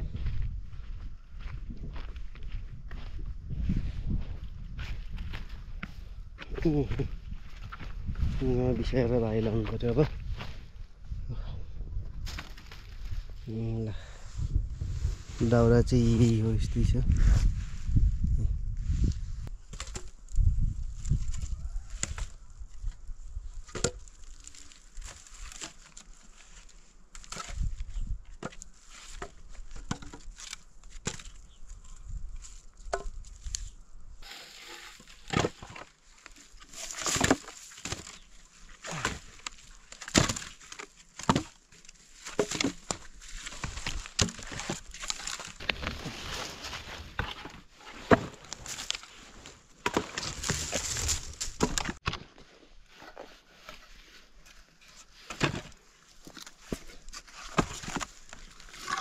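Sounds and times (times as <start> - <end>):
dry brush rustling: 33.2 - 52.0.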